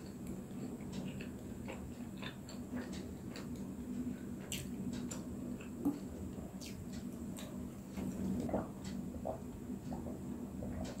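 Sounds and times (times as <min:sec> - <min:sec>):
wet chewing: 0:00.0 - 0:03.7.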